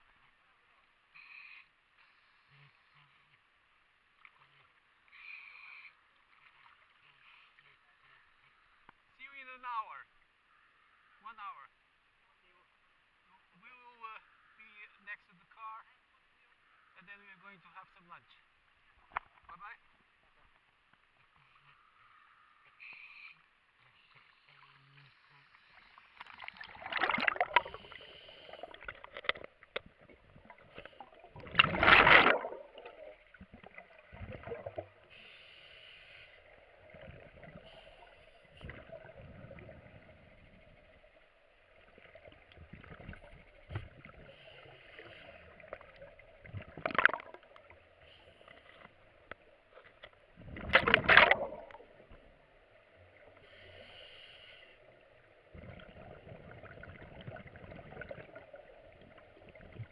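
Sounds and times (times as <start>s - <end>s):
faint steady hiss: 0.0s - 50.4s, 51.0s - 59.9s
exhaled bubbles gushing: 25.8s - 35.1s, 36.5s - 47.9s, 50.4s - 52.4s, 55.5s - 59.9s.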